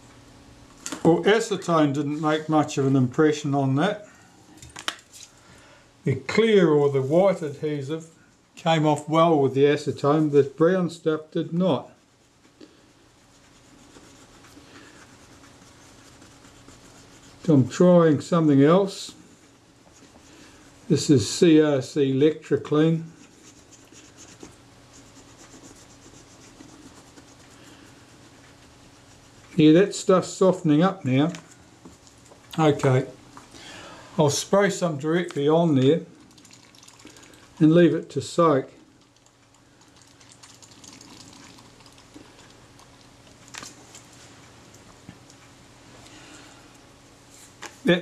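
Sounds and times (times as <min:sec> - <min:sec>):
aerosol solvent crackling fizz: 0:36.2 - 0:43.8.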